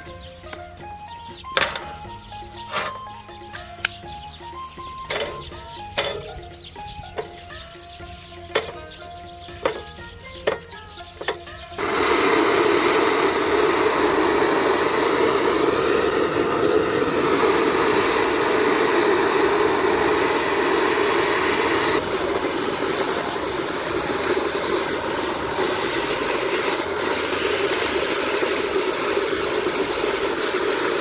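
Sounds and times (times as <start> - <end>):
gas blowtorch burning: 11.2 - 31.0.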